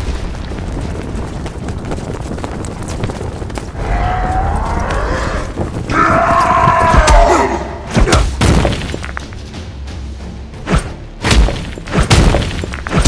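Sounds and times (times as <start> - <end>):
low rumble: 0.0 - 7.9.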